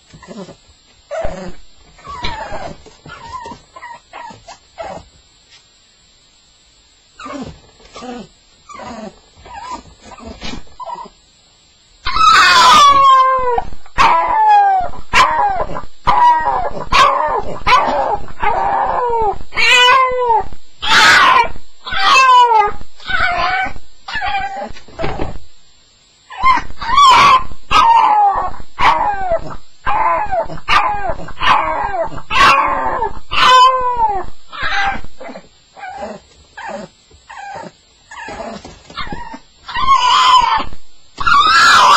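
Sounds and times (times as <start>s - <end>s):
dog whimpering: 0.1s - 5.1s, 7.2s - 11.2s, 21.9s - 24.8s, 27.8s - 41.9s
dog yelping and howling: 0.2s - 5.1s, 7.2s - 11.2s, 12.0s - 24.8s, 26.3s - 41.9s.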